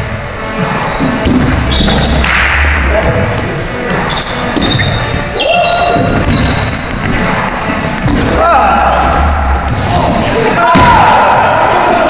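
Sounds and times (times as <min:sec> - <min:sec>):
sneaker squeaks: 0:00.6 - 0:02.3, 0:03.8 - 0:08.0, 0:09.8 - 0:10.4
balls bouncing on wooden floor: 0:01.0 - 0:05.3, 0:05.9 - 0:08.4
players shouting: 0:08.2 - 0:12.0.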